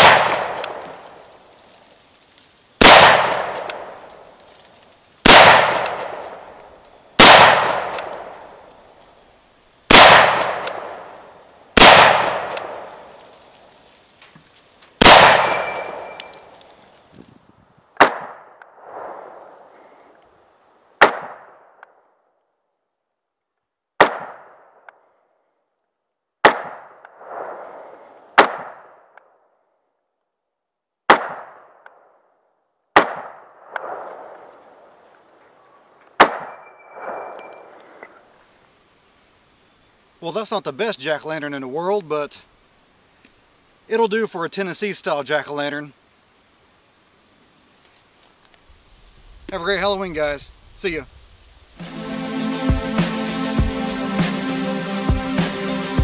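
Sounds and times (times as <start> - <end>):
rifle shots echoing: 0.0 - 1.3, 2.8 - 4.4, 5.2 - 8.7, 9.9 - 13.3, 15.0 - 16.6, 18.0 - 19.7, 21.0 - 21.8, 24.0 - 24.9, 26.4 - 29.1, 31.1 - 32.1, 32.9 - 34.9, 36.2 - 37.9.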